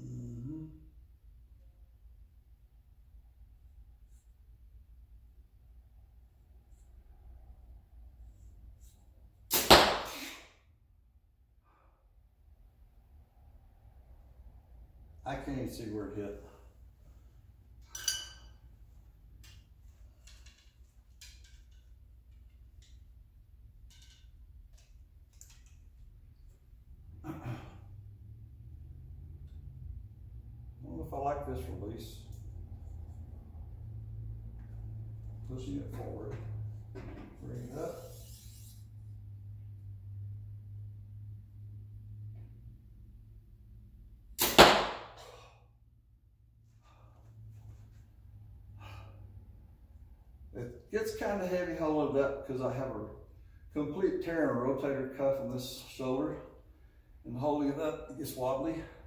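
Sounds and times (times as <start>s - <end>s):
bowstring snapping: 9.5s - 10.4s
arrow striking target: 9.5s - 10.5s, 44.4s - 45.4s
breathy exhale: 48.7s - 49.4s.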